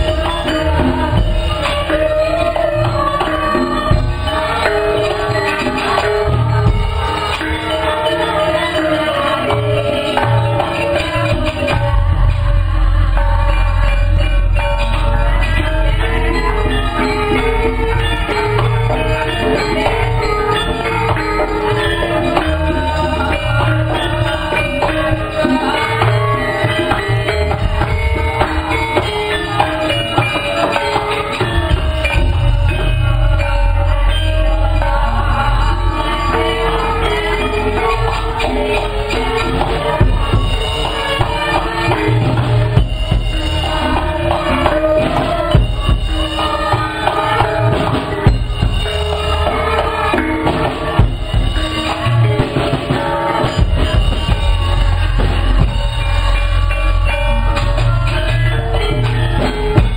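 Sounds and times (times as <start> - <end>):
gamelan ensemble playing: 0.0 - 59.9
steady drumming: 0.0 - 59.9
bass drum and cymbal: 31.5 - 59.9.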